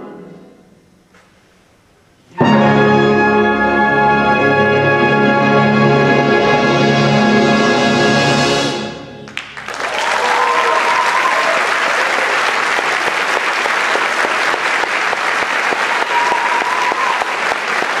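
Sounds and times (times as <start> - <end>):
audience applauding: 9.3 - 18.0.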